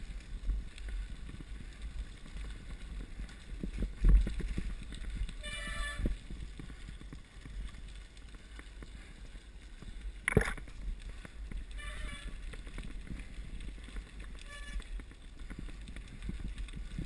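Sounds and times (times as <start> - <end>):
bike rattling: 0.0 - 17.0
tyres on gravel: 0.0 - 17.0
wind buffeting microphone: 0.0 - 17.0.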